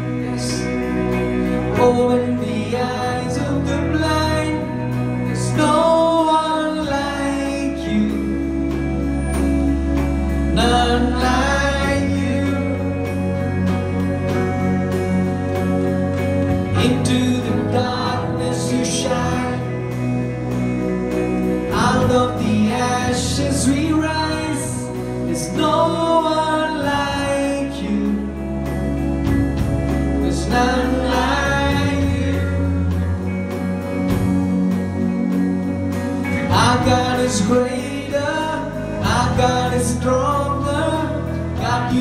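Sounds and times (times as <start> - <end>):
person singing: 0.0 - 29.3, 30.0 - 42.0
live band playing: 0.0 - 42.0.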